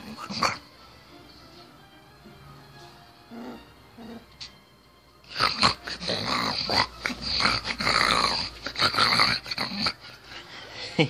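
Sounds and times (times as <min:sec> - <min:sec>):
puppy growling: 0:00.0 - 0:00.8, 0:03.1 - 0:04.6, 0:05.2 - 0:10.5.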